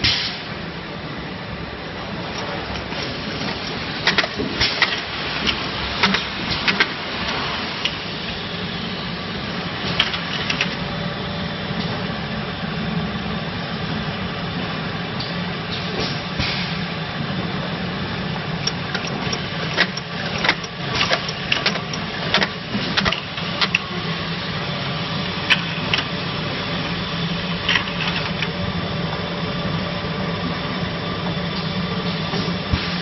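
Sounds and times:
machine hum: 0.6 - 33.0
caps clicking and clacking: 2.2 - 8.0, 18.6 - 23.9, 25.5 - 26.1.

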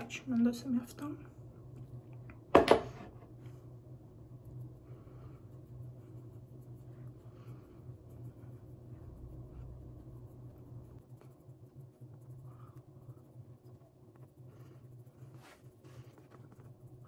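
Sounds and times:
steady low hum: 0.0 - 17.0
fingertips brushing skin: 4.4 - 17.0.

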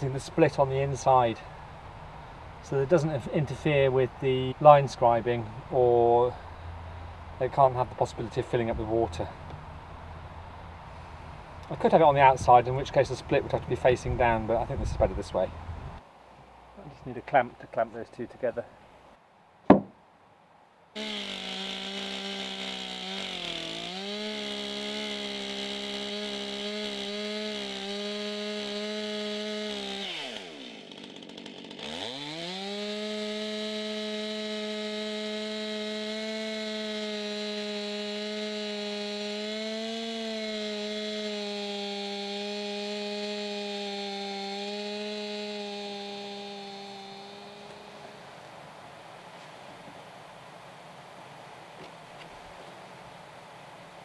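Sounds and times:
chainsaw cutting a log: 21.0 - 48.3.

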